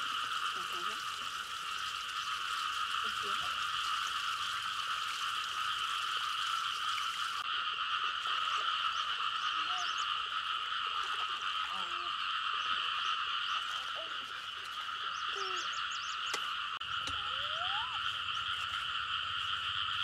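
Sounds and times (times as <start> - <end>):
chorus of calling animals: 7.4 - 20.0.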